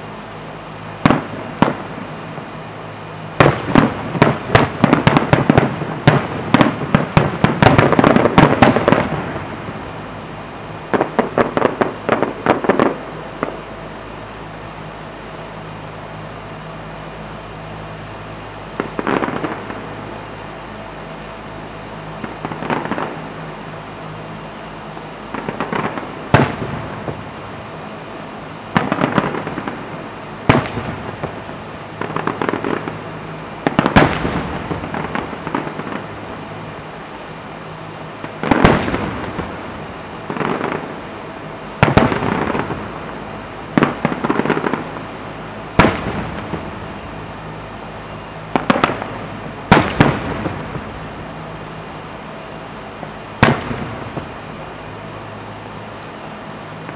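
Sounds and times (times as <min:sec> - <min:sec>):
firework crackling pops: 0:00.9 - 0:02.5, 0:03.3 - 0:10.0, 0:10.8 - 0:13.7, 0:18.7 - 0:20.2, 0:22.2 - 0:23.7, 0:25.0 - 0:27.8, 0:28.7 - 0:36.7, 0:37.8 - 0:47.3, 0:48.5 - 0:51.4, 0:53.0 - 0:54.6.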